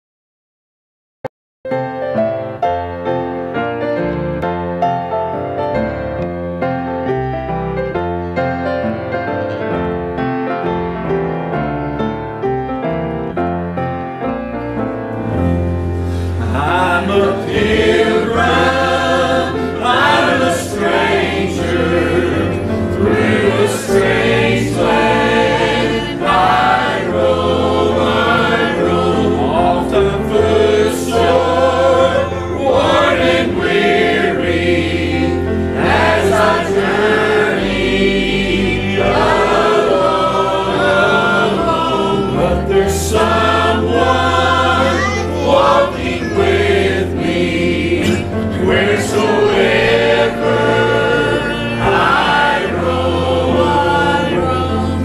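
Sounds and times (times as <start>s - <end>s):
piano playing: 1.7s - 55.0s
choir singing gospel: 15.2s - 55.0s.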